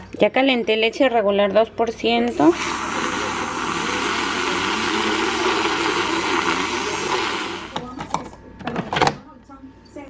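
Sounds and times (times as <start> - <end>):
milk frother whirring: 2.2 - 8.2.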